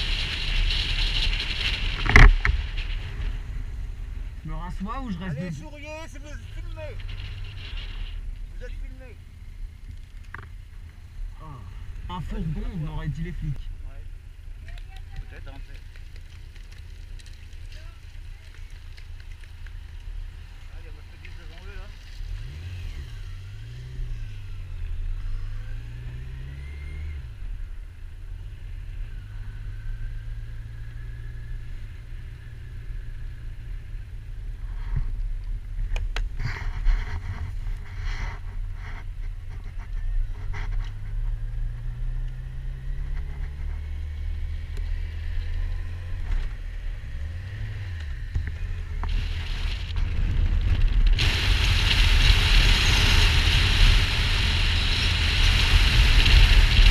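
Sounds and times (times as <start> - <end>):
wind noise on microphone: 5.2 - 8.8, 34.6 - 56.9
motorcycle engine running: 14.6 - 56.9.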